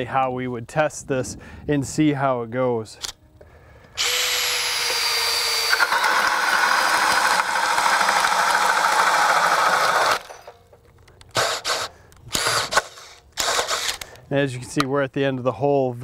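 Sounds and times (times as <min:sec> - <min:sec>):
drill motor whining: 0:03.9 - 0:10.6, 0:11.3 - 0:14.0
drill bit cutting wood chips: 0:04.0 - 0:10.5.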